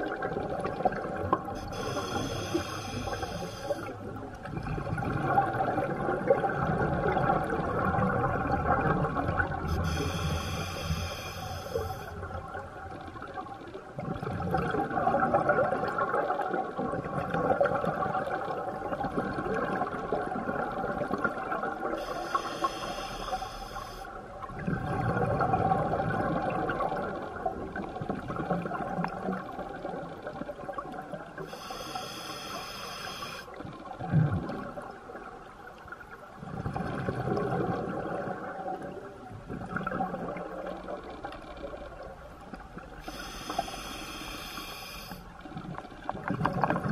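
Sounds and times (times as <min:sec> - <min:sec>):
exhaled air bubbling underwater: 0:00.0 - 0:46.9
hissing regulator inhalation: 0:01.6 - 0:03.9, 0:09.8 - 0:12.1, 0:22.1 - 0:24.1, 0:31.5 - 0:33.5, 0:43.1 - 0:45.2.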